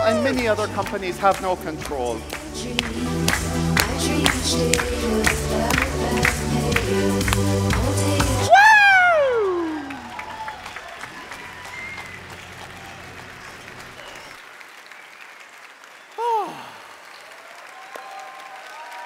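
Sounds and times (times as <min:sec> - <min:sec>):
crowd member shouting: 0:00.0 - 0:00.7, 0:08.5 - 0:10.4
live music: 0:00.0 - 0:12.2
audience applauding: 0:00.0 - 0:19.0.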